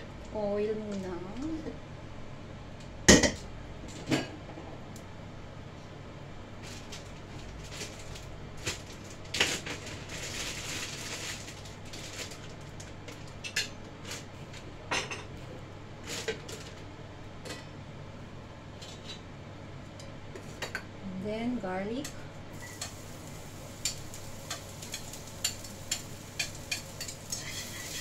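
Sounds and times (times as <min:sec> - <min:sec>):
steady low hum: 0:00.0 - 0:28.0
hiss: 0:22.6 - 0:28.0.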